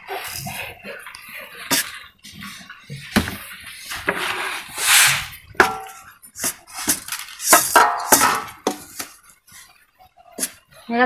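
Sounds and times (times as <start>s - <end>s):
scraping swish: 4.2s - 5.4s
steel plate clinking: 5.6s - 9.2s.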